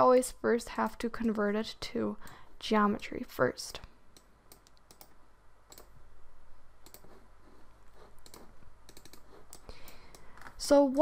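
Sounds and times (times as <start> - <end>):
low steady hum: 0.0 - 11.0
computer mouse clicks: 3.8 - 6.0, 6.8 - 7.2, 8.2 - 10.6.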